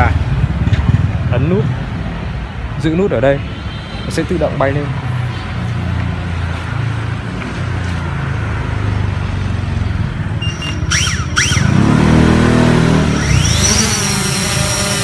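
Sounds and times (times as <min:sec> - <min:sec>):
drone propellers humming: 0:10.4 - 0:15.0.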